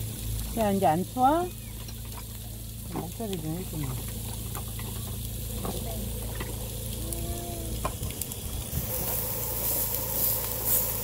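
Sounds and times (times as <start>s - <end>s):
beef sizzling on a hot griddle: 0.0s - 11.0s.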